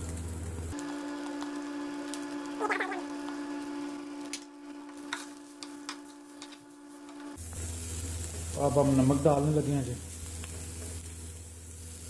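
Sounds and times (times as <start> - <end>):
low-pitched hum: 0.0 - 8.6.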